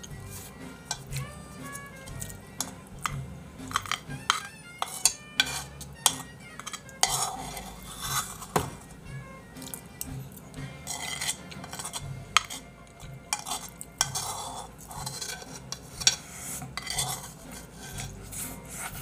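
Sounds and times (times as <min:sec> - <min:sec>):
metal spoon scraping a bowl: 0:00.0 - 0:19.0.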